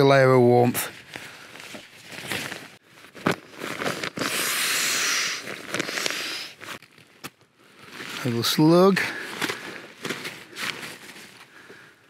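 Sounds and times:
nylon fabric rustling: 0.9 - 11.8.

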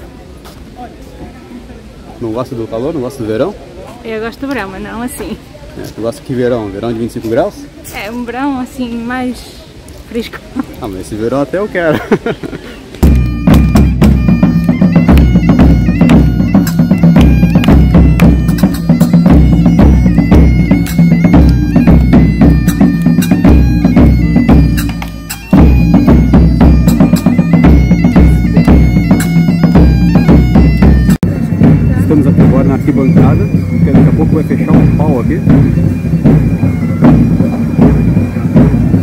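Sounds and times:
bagpipe music with drone: 13.0 - 39.0
regular drum beat: 13.0 - 39.0.

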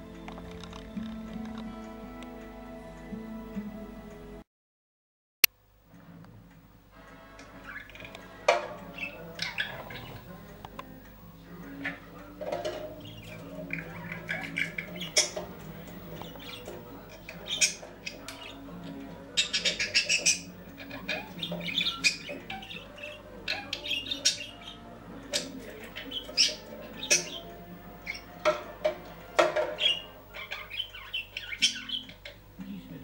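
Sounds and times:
budgerigar chirping: 7.6 - 8.1, 8.8 - 10.5, 12.8 - 33.0.

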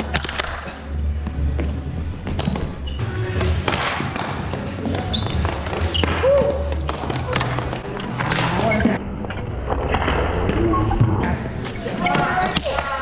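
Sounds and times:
hockey sticks and ball clacking: 0.0 - 2.7, 3.4 - 13.0.

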